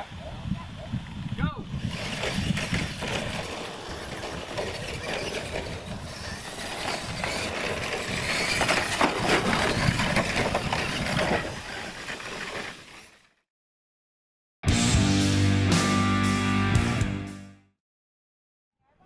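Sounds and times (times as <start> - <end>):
toy truck motors running: 1.7 - 13.4.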